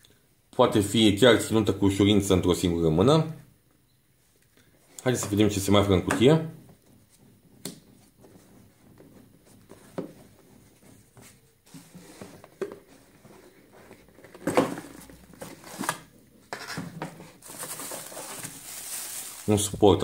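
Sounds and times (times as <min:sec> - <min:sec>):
cardboard taps and scrapes: 0:06.8 - 0:18.6
cardboard and plastic bag rustling: 0:09.6 - 0:20.0.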